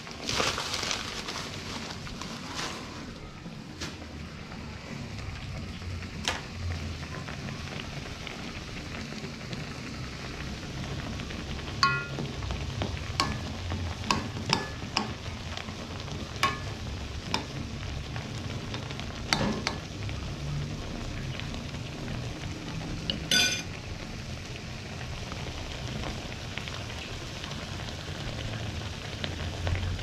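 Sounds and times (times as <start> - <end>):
food cooking low rush: 0.0 - 30.0
metal utensil clinking on pan: 11.8 - 12.2, 13.2 - 13.5, 16.4 - 16.8, 23.1 - 23.7.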